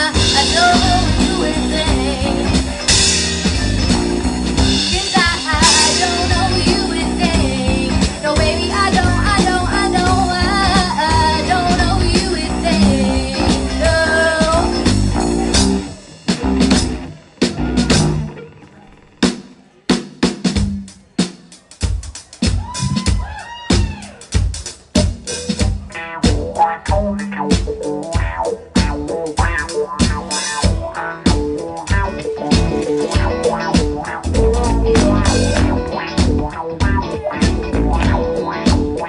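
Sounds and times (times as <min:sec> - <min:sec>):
woman singing: 0:00.0 - 0:02.8, 0:04.7 - 0:15.0
drum kit snare and rim hits: 0:00.0 - 0:18.4, 0:19.2 - 0:39.0
live band playing: 0:00.0 - 0:39.0.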